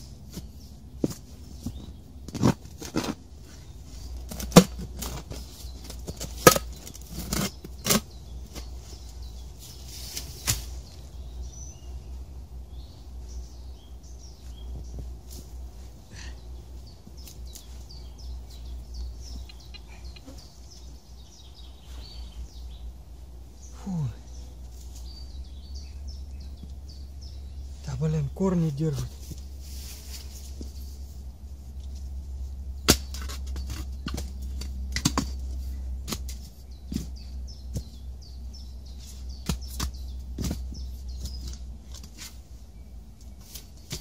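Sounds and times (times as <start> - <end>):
digging in loose earth: 0.0 - 44.0
shovel chopping into soil: 10.0 - 10.8.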